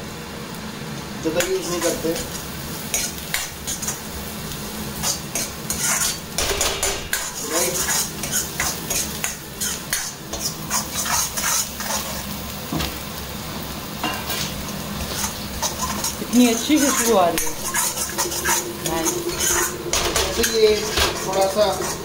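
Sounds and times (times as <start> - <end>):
garlic sizzling in hot oil: 0.0 - 22.0
metal spoon scraping a wok: 2.9 - 4.1, 5.0 - 12.2, 14.1 - 22.0.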